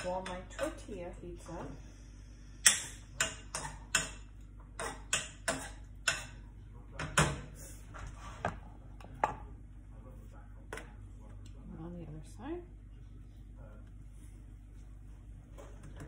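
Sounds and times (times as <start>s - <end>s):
utensil tapping on skillet: 2.6s - 6.4s.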